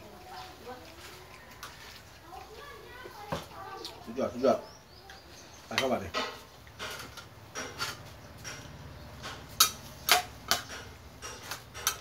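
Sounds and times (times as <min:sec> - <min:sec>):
metal spatula clinking on pan: 0:09.2 - 0:12.0.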